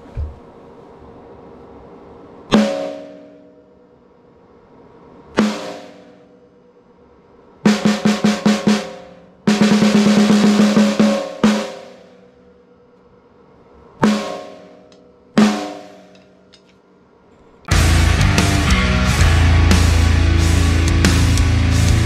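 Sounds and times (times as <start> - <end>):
snare drum struck with stick: 2.5 - 3.3, 5.4 - 6.2, 7.7 - 12.2, 14.0 - 14.8, 15.4 - 16.2
snare drum roll: 5.4 - 6.2, 7.7 - 12.2, 14.0 - 14.8, 15.4 - 16.2.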